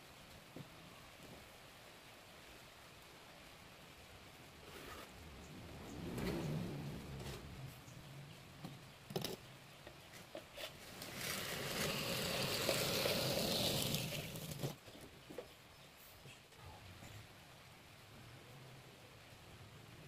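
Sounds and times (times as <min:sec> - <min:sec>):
scraping cement board: 0:10.3 - 0:14.8.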